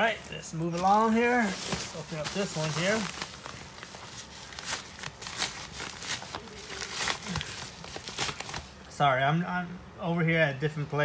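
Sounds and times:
padded envelope crinkling: 0:00.0 - 0:08.8.

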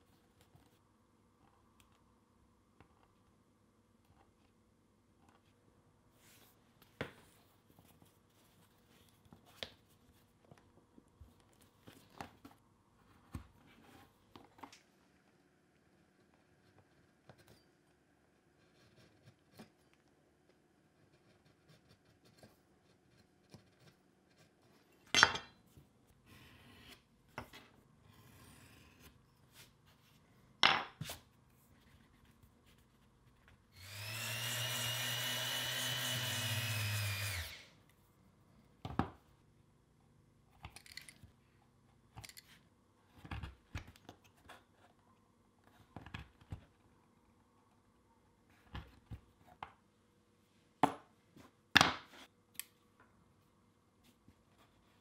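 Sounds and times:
small power tool running: 0:33.8 - 0:37.7.

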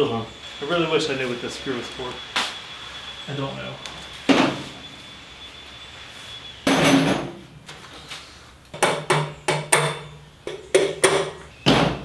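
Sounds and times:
sharp knocks with metallic ring: 0:08.8 - 0:12.0.

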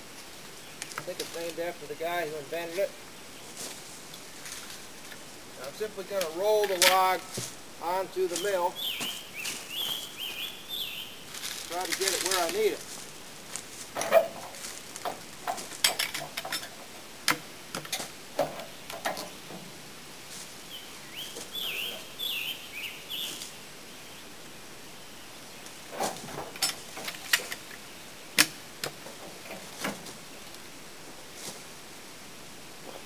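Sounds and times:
log knocks and scrapes: 0:03.5 - 0:07.6, 0:11.3 - 0:19.7, 0:25.9 - 0:27.8
bird chirping: 0:07.8 - 0:12.6, 0:20.6 - 0:24.3.

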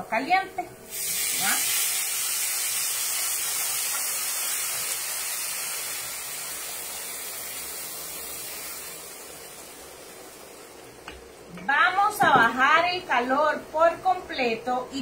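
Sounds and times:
water hissing in hot pan: 0:00.9 - 0:11.5.

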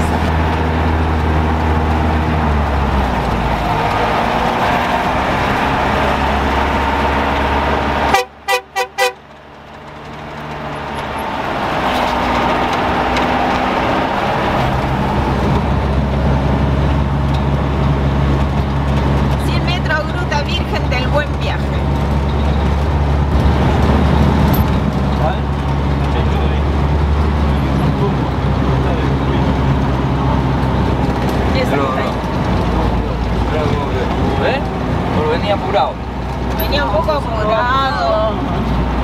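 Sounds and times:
bus engine running: 0:00.0 - 0:39.0
horn toots: 0:08.0 - 0:09.3.

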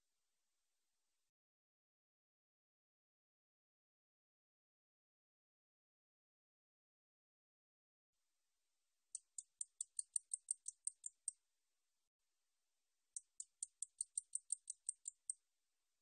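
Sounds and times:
katydid high ticks: 0:09.2 - 0:11.4, 0:13.2 - 0:15.4.

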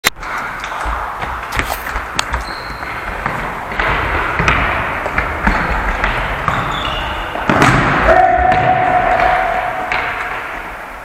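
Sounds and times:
running footsteps: 0:00.2 - 0:07.5
ball kicked and bouncing: 0:00.3 - 0:10.1.

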